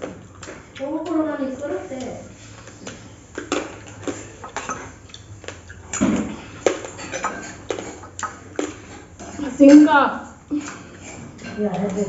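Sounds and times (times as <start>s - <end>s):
spoons clinking on steel bowls: 3.4s - 5.1s, 6.6s - 9.9s, 10.6s - 12.0s.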